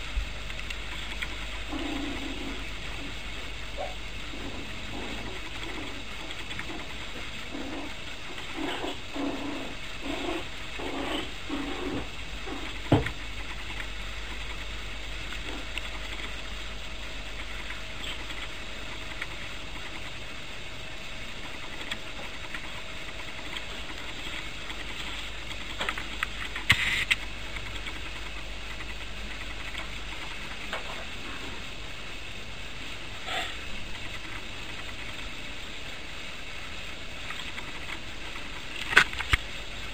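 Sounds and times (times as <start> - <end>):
puppy growls: 1.0 - 3.2, 3.8 - 13.0.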